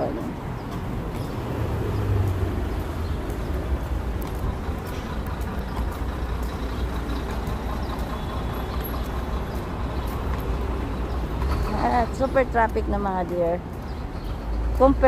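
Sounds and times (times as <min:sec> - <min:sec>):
traffic rumble: 0:00.0 - 0:15.0.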